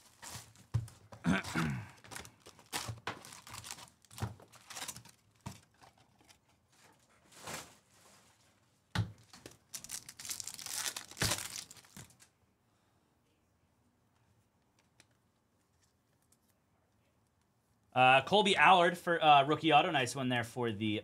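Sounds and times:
packaging torn and crinkled: 0:02.0 - 0:06.4, 0:09.4 - 0:12.3.

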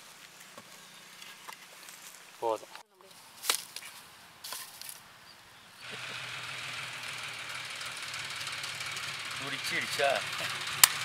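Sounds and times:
engine droning: 0:05.8 - 0:11.0.

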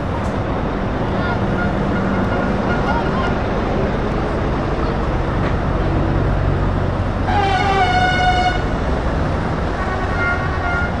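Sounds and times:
diesel truck engines idling: 0:00.0 - 0:11.0
truck horn: 0:01.5 - 0:03.4, 0:07.2 - 0:08.7, 0:09.7 - 0:11.0.

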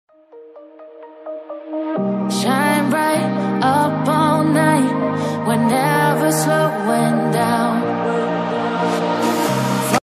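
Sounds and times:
melodic background music: 0:00.1 - 0:10.0.

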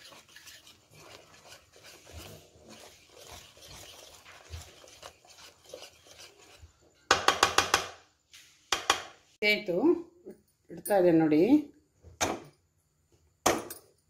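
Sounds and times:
whisk scraping batter in bowl: 0:00.0 - 0:07.6.

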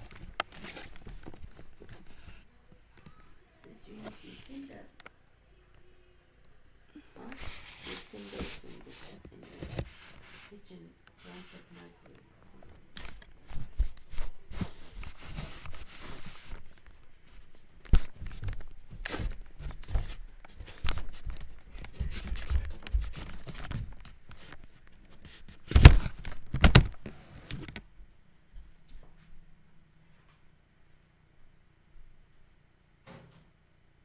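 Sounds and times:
recorder handling noise: 0:00.0 - 0:02.4, 0:12.0 - 0:27.9
footsteps: 0:11.2 - 0:25.6.

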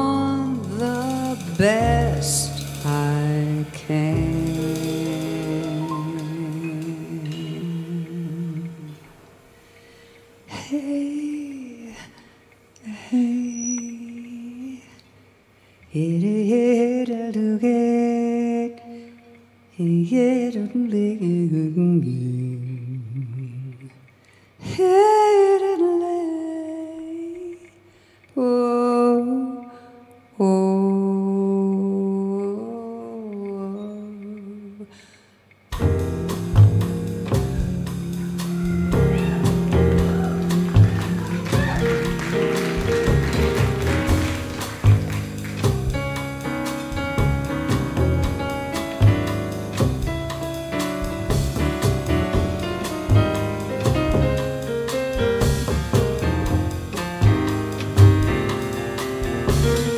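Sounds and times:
woman singing wordless jazz: 0:00.0 - 0:15.1, 0:15.9 - 0:35.0, 0:35.8 - 0:59.9
woman singing a long note: 0:36.3 - 0:42.4.

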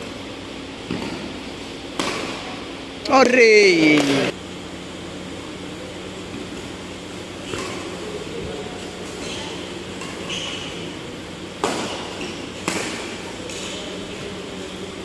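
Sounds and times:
steady low hum: 0:00.0 - 0:15.0
rackets hitting shuttlecock: 0:01.9 - 0:02.5, 0:03.1 - 0:04.3, 0:07.3 - 0:08.3, 0:09.0 - 0:14.1.

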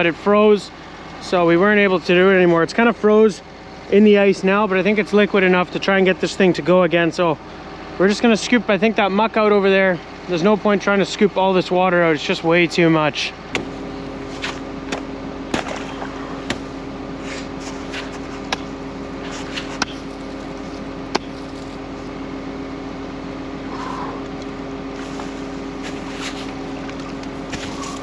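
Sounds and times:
wheel loader engine idling: 0:00.0 - 0:28.0
axe chopping into ice: 0:14.4 - 0:16.6.

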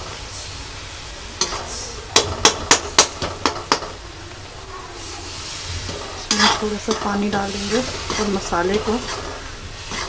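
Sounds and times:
spices frying with faint hiss: 0:00.0 - 0:10.0
metal spoon clanking on pan rim: 0:01.4 - 0:03.9, 0:05.9 - 0:10.0.

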